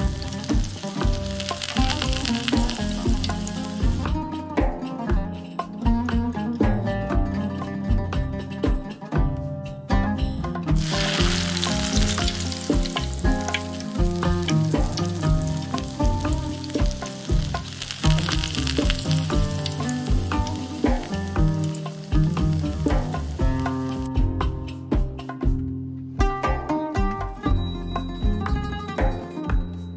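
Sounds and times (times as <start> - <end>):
syrup boiling in a pan: 0.0 - 4.0, 10.8 - 24.1
plucked-string background music: 0.0 - 29.9.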